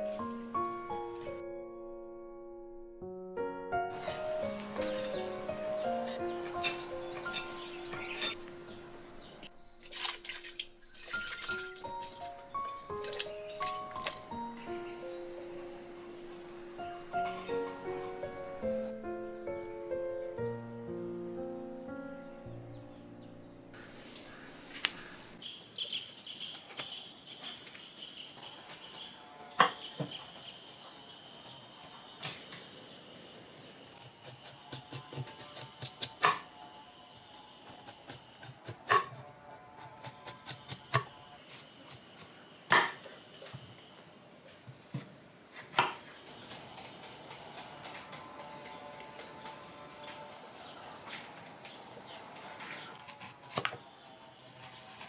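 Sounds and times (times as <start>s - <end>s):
birds chirping: 3.9s - 35.6s
cleaver chopping bamboo shoot: 34.0s - 36.6s, 39.8s - 43.1s, 45.5s - 49.7s, 52.9s - 53.8s
knife cutting bamboo on wooden board: 52.5s - 53.8s.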